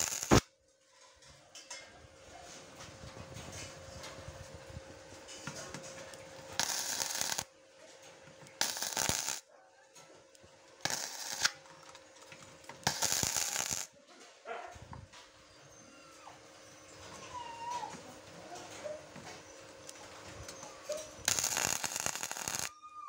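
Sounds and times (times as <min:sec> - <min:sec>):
welding arc crackling: 0:00.0 - 0:00.5, 0:06.6 - 0:07.5, 0:08.6 - 0:09.5, 0:10.8 - 0:12.0, 0:12.7 - 0:13.9, 0:21.2 - 0:22.7.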